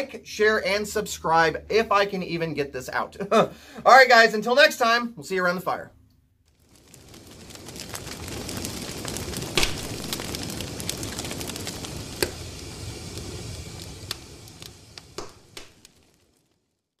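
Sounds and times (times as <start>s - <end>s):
wood fire crackling: 0.0s - 17.0s
logs popping: 6.0s - 17.0s.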